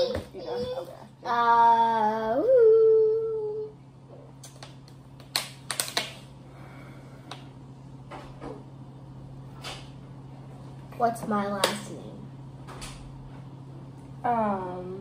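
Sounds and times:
vocal whine: 0.0s - 4.4s.

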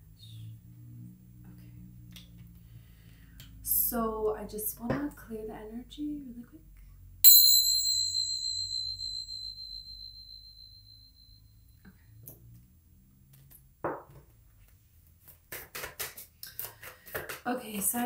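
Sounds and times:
small cymbals ringing: 7.2s - 11.7s.

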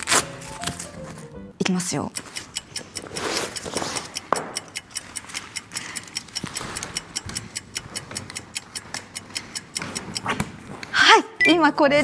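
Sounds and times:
clock-like ticking: 1.8s - 12.0s.

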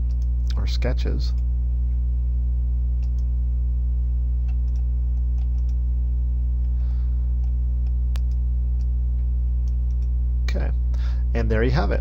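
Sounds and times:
electrical mains hum: 0.0s - 12.0s
computer mouse clicks: 3.0s - 3.3s, 4.4s - 5.8s, 7.4s - 8.9s, 9.6s - 10.1s.

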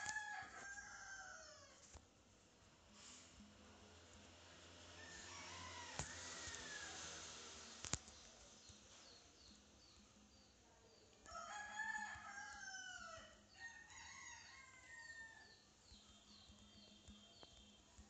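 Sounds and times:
rooster crowing: 0.0s - 1.8s, 5.0s - 7.3s, 11.3s - 15.6s.

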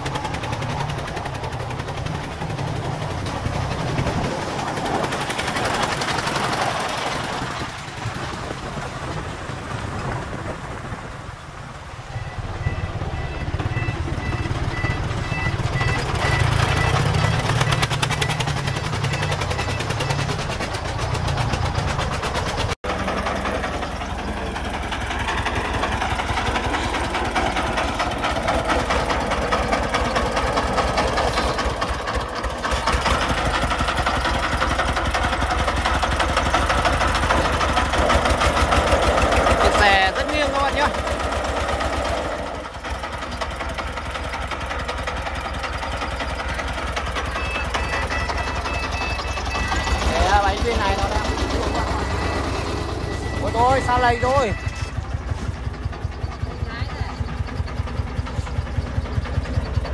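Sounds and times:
diesel truck engine knocking: 0.0s - 59.9s
short high beeps: 47.2s - 55.2s.

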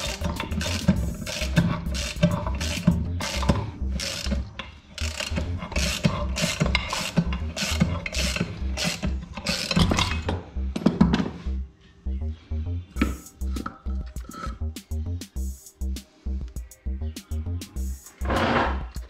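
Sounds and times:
hand ratchet clicking: 0.0s - 10.4s
background music with bass line: 0.0s - 19.0s.

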